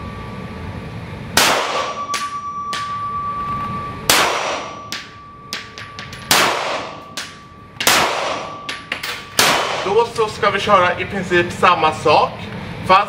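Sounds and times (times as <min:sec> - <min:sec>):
pistol shots with echo: 0:01.4 - 0:02.9, 0:04.1 - 0:05.2, 0:06.3 - 0:10.0.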